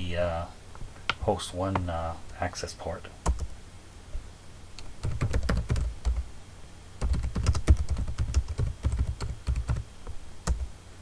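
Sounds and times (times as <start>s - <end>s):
typing on computer keyboard: 3.3s - 3.5s, 5.0s - 6.2s, 7.0s - 9.8s.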